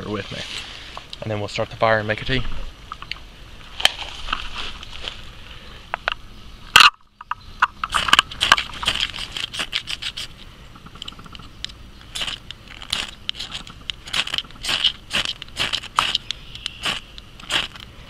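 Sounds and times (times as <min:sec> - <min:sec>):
flint and steel scraping: 0:07.6 - 0:18.0.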